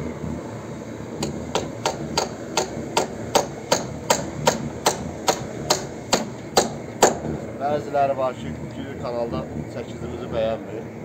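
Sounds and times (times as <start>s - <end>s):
hammer striking nail into wood: 1.2s - 7.3s.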